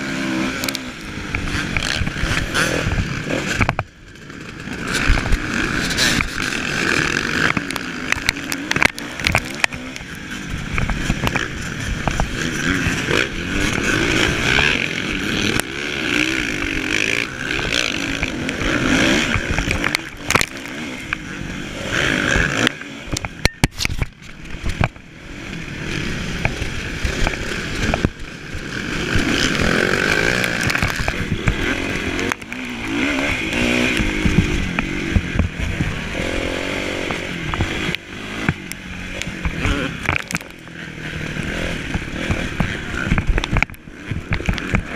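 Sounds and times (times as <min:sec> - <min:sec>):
motocross engine revving: 0:00.0 - 0:44.9
wind noise: 0:08.1 - 0:40.7.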